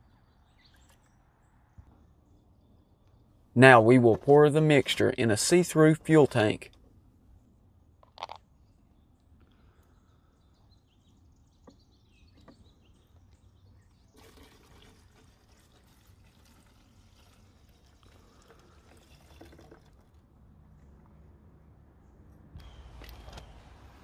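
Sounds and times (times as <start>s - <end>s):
liquid trickling into plastic tank: 13.9s - 20.3s.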